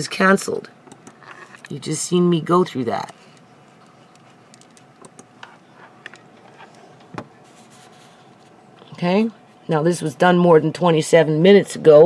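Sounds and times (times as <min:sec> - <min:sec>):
computer keyboard clicks: 0:00.9 - 0:01.2, 0:04.1 - 0:06.2.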